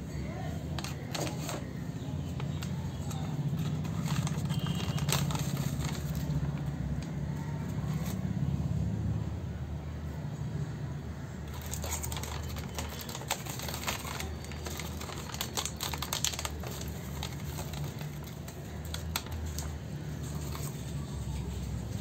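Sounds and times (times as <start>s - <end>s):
plastic scoop and foil packet clicks: 0.7s - 7.2s, 11.5s - 21.0s.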